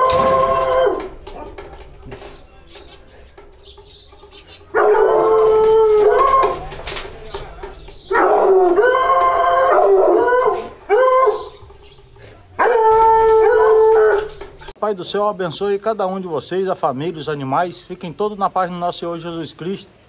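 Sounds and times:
dog baying: 0.0 - 1.7, 4.7 - 6.7, 8.1 - 11.7, 12.6 - 14.5.

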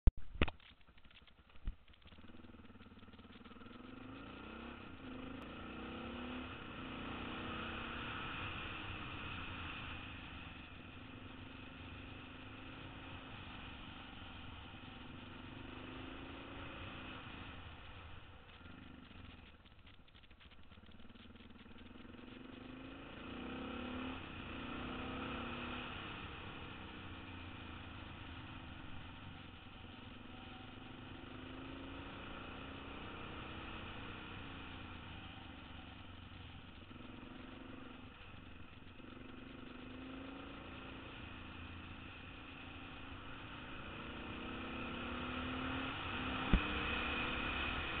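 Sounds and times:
motorcycle engine revving: 0.9 - 48.0.

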